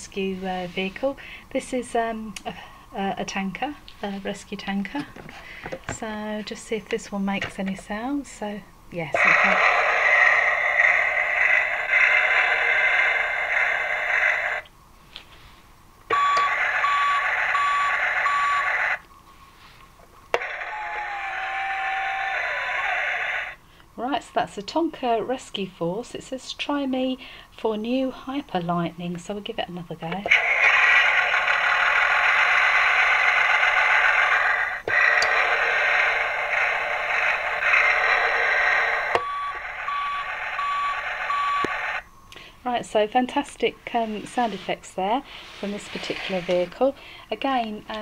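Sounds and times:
toy electronic sound effects: 9.2s - 14.6s, 16.1s - 19.0s, 20.4s - 23.6s, 30.3s - 42.0s
electronic toy beeps: 16.1s - 18.8s, 39.2s - 42.0s
steady electronic tone: 32.7s - 42.2s.

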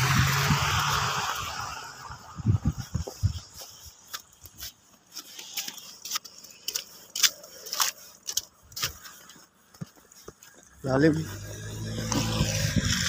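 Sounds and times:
footsteps crunching in snow: 2.6s - 12.8s.

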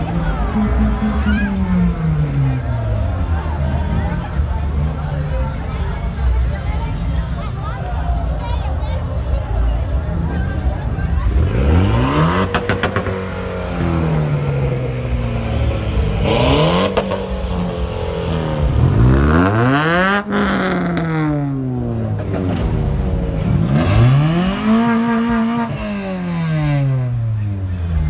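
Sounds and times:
car engines revving: 0.0s - 28.0s
exhaust crack: 11.3s - 17.8s.

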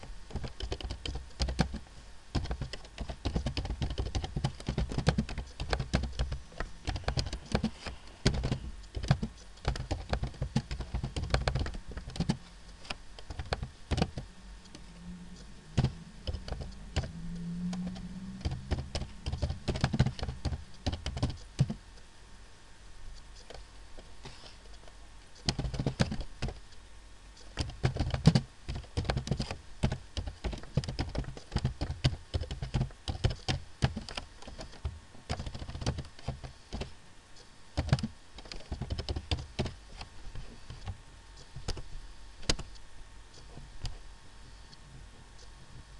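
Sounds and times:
computer keyboard typing: 0.3s - 14.8s, 15.7s - 21.8s, 25.4s - 26.6s, 27.4s - 36.9s, 37.8s - 40.1s, 41.6s - 41.8s.

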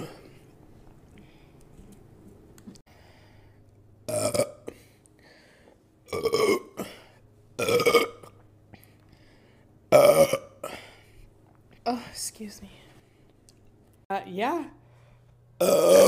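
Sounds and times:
woman burping loudly: 4.1s - 4.8s, 6.1s - 7.0s, 7.6s - 8.4s, 9.9s - 10.9s, 15.6s - 16.0s.

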